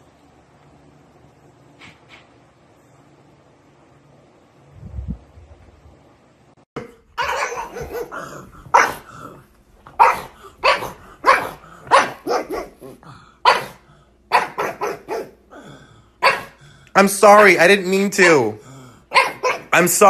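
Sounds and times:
dog barking: 7.2 - 9.1, 9.9 - 15.4, 16.2 - 16.6, 19.1 - 19.8.

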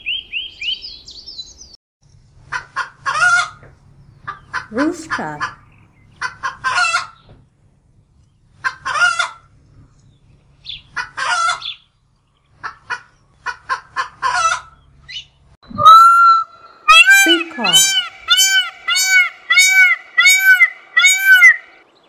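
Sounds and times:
chickens clucking and squawking: 2.4 - 3.6, 4.2 - 7.2, 8.6 - 9.5, 10.7 - 11.9, 12.5 - 21.8.

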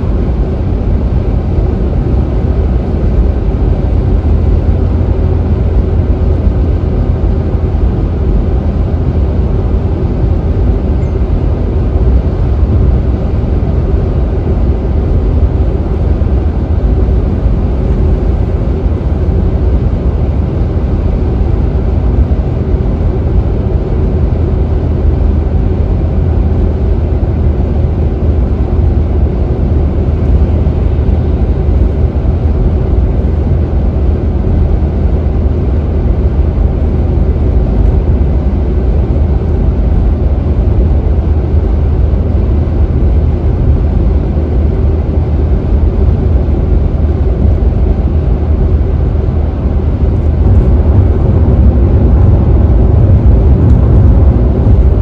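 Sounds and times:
tyre and road noise: 49.1 - 55.0.

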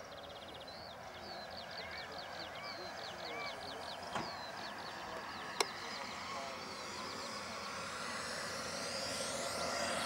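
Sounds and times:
model jet turbine whining: 3.5 - 10.0.

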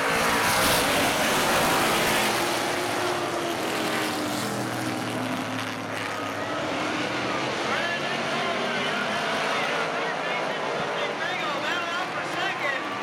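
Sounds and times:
race car engines roaring: 0.0 - 13.0.

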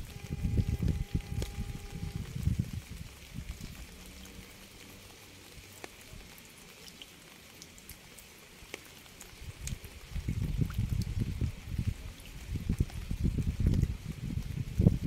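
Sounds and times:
low rumble: 0.0 - 4.0
rain falling: 0.0 - 15.0.

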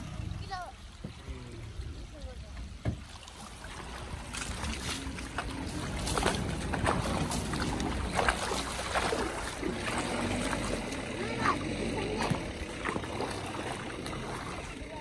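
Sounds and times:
off-road vehicle engine running low: 0.0 - 15.0
tyres splashing through water: 0.0 - 15.0.

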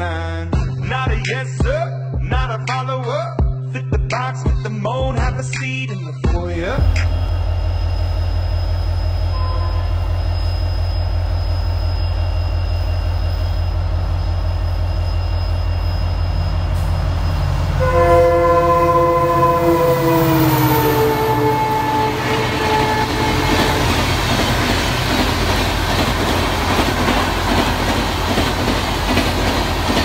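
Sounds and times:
diesel locomotive rumbling: 6.6 - 30.0
train horn blast: 9.2 - 10.6, 15.8 - 24.4.

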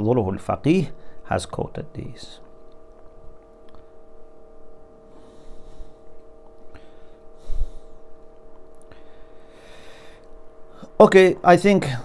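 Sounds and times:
faint electrical hum: 0.0 - 12.0
soft breaths: 5.0 - 11.0.

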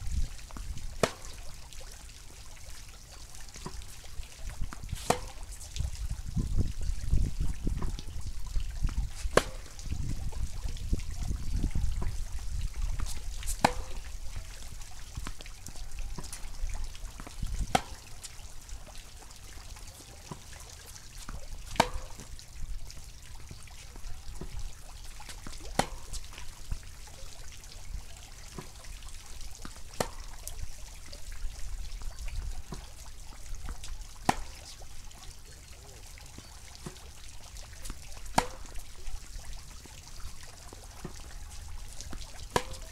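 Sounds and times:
wind rumble on microphone: 0.0 - 1.0, 4.5 - 15.2, 15.9 - 17.8
ball bouncing: 0.5 - 1.5, 4.6 - 5.6, 8.9 - 9.8, 12.9 - 14.2, 15.2 - 18.1, 21.2 - 22.3, 25.3 - 26.4, 29.6 - 30.4, 33.7 - 34.7, 38.3 - 38.8, 41.0 - 41.4, 42.0 - 42.9
tennis racket striking ball: 1.0 - 1.4, 5.0 - 5.6, 9.1 - 9.8, 13.0 - 14.1, 17.2 - 18.1, 21.3 - 22.3, 25.7 - 26.3, 30.0 - 30.3, 34.3 - 34.7, 38.3 - 38.8, 42.5 - 42.9.

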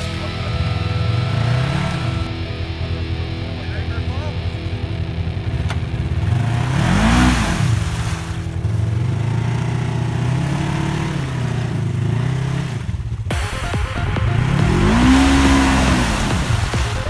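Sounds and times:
utv engine revving: 0.0 - 13.4, 14.3 - 17.0
wheels churning in mud: 5.5 - 13.2, 14.4 - 17.0.

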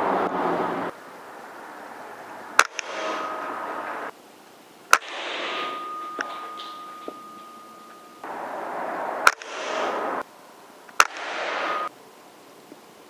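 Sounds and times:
air rifle shots: 2.6 - 4.1, 4.9 - 7.9, 9.1 - 10.2, 11.0 - 11.9.

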